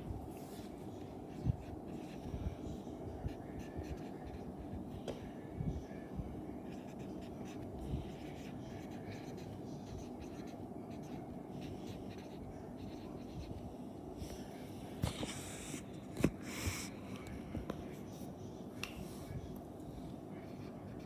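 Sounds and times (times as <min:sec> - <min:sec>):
marker writing on whiteboard: 0:06.7 - 0:13.6.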